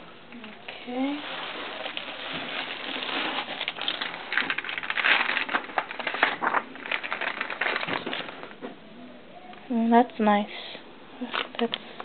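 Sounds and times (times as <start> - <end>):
paper crinkling and rustling: 0.4 - 8.8.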